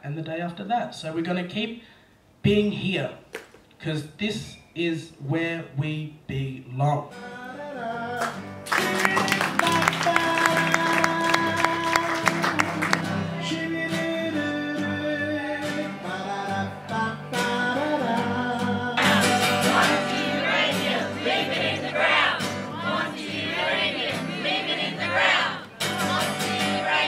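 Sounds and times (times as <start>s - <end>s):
person singing: 6.9s - 27.0s
acoustic guitar strumming: 7.0s - 27.0s.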